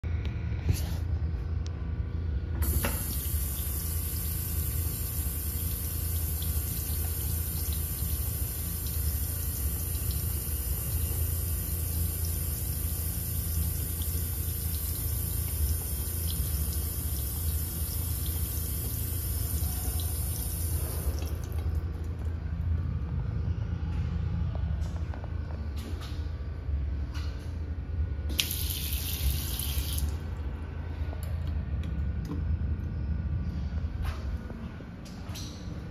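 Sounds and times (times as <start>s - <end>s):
steady low hum: 0.0s - 35.9s
faucet running into sink: 2.6s - 21.8s, 28.3s - 30.2s.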